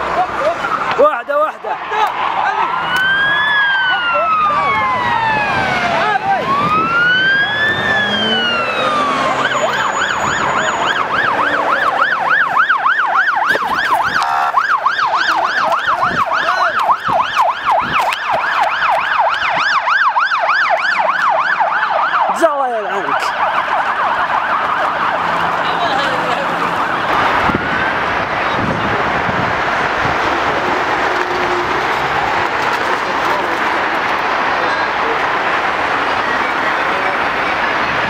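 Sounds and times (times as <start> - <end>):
electronic siren wailing and yelping: 2.6 - 28.0
steady rushing noise: 23.0 - 38.0.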